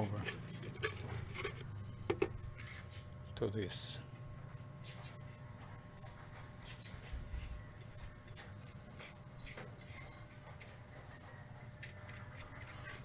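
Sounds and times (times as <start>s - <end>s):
low steady hum: 0.0s - 13.0s
paintbrush scratching and dabbing: 5.0s - 13.0s.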